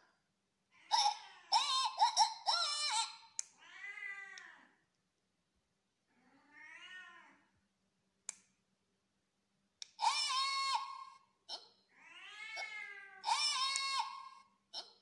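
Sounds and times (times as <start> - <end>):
cat meowing: 2.6 - 4.7, 6.2 - 7.5, 11.9 - 14.4.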